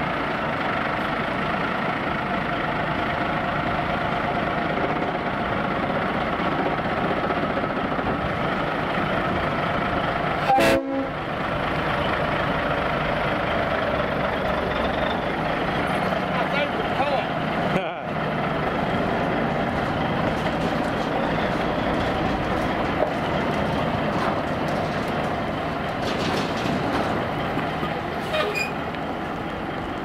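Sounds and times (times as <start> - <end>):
diesel engine idling: 0.0 - 30.0
horn toot: 10.4 - 11.2.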